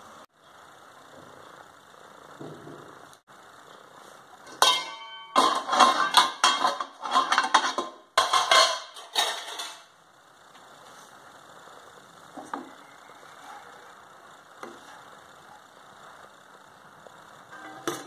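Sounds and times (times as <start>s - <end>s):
metal pan lid clang: 4.5s - 9.8s, 17.5s - 18.0s
metal kitchenware clattering: 4.5s - 9.9s, 17.5s - 18.0s.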